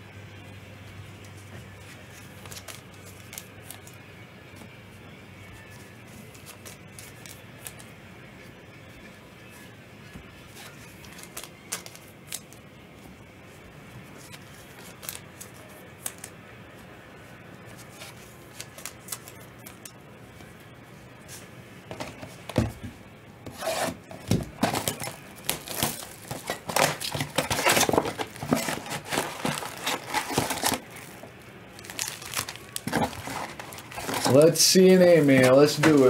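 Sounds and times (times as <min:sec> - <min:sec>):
wrappers crinkling and tearing: 0:01.2 - 0:04.0, 0:05.5 - 0:07.9, 0:10.5 - 0:12.6, 0:14.1 - 0:16.4, 0:17.6 - 0:20.0, 0:23.6 - 0:36.0.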